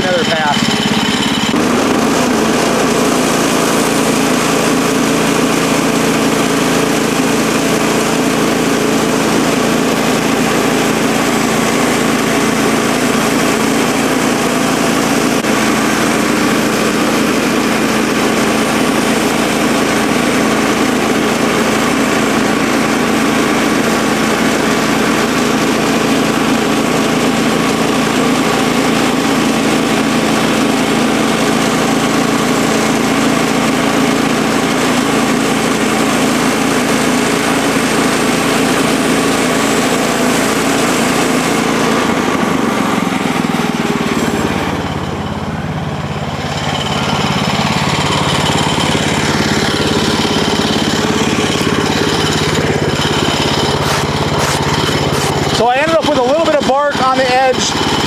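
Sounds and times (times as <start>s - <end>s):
band blade cutting log: 0.0s - 2.6s, 48.5s - 56.2s
bandsaw mill engine running: 0.0s - 58.0s.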